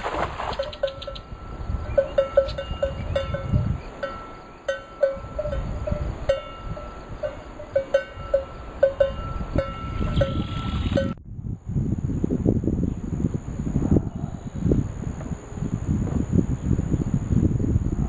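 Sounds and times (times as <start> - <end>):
bright metallic pings: 0.8 - 11.2.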